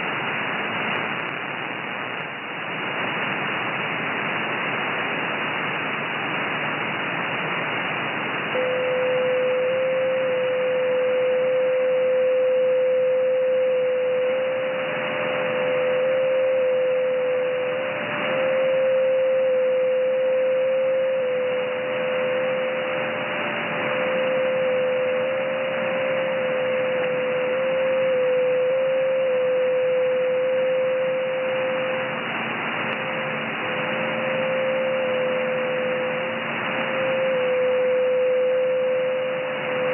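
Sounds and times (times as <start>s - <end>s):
radio receiver hiss: 0.0s - 39.9s
faint higher tone: 8.5s - 39.9s.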